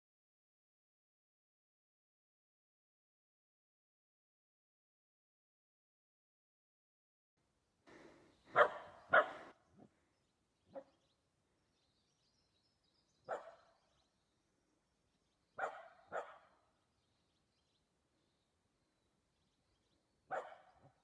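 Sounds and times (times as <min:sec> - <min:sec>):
dog barking: 0:08.5 - 0:09.5, 0:10.7 - 0:11.0, 0:13.2 - 0:13.7, 0:15.6 - 0:16.6, 0:20.3 - 0:21.0.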